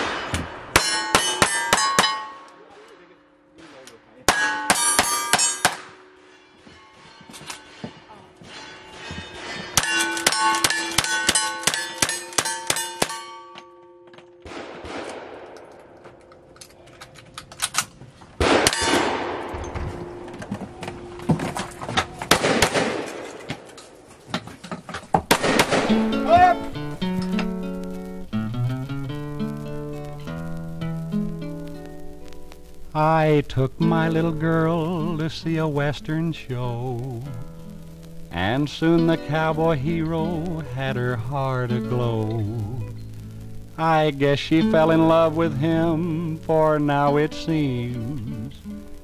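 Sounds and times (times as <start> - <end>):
gunshots: 0.0 - 2.4, 14.4 - 16.0, 18.4 - 20.2, 22.3 - 23.8, 25.3 - 26.8
steel target clanging: 0.0 - 3.0, 3.6 - 14.5.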